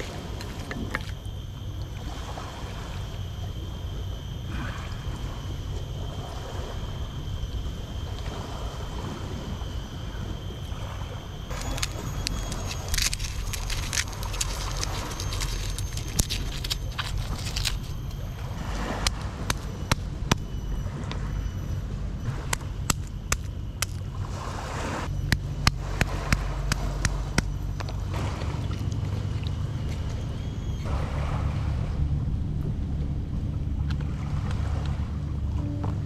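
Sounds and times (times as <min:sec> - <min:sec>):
sea water: 0:00.0 - 0:36.0
wind: 0:00.0 - 0:36.0.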